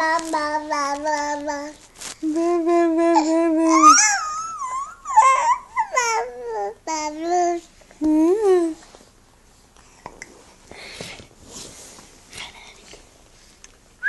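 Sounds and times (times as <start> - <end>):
toddler babbling: 0.0 - 1.8, 3.1 - 7.7.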